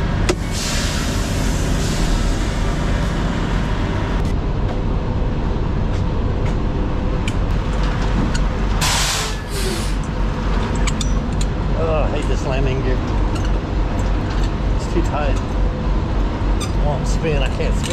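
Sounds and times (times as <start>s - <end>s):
diesel truck engines idling: 0.0s - 17.9s
air hissing: 0.3s - 4.0s, 8.8s - 10.1s.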